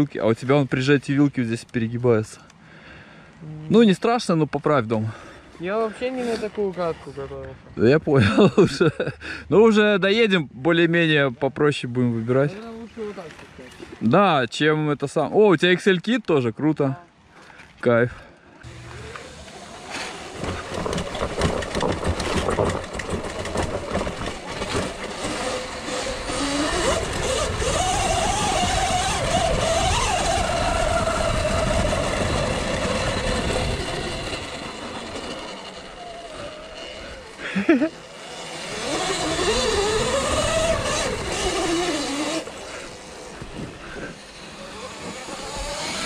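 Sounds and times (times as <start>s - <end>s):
electric motor whine: 18.6s - 46.0s
steady rushing noise: 18.6s - 46.0s.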